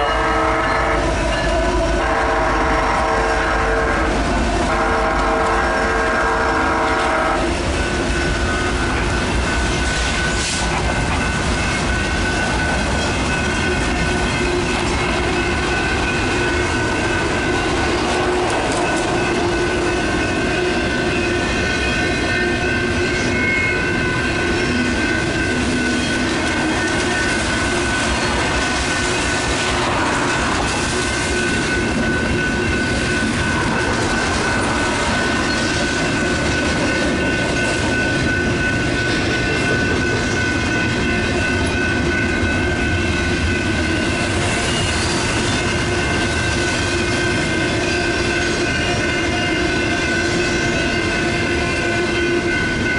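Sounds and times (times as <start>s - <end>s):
train horn: 0.0s - 7.6s
crossing bells ringing: 0.0s - 52.9s
train wheels rumbling on rails: 0.0s - 52.9s.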